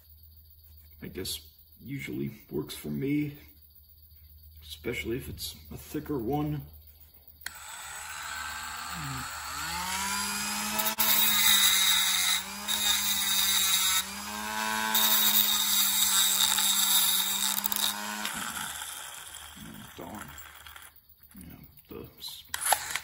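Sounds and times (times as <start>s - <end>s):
rotary tool motor whine: 7.4s - 21.0s, 22.5s - 23.0s
harsh grinding of metal: 7.5s - 20.9s.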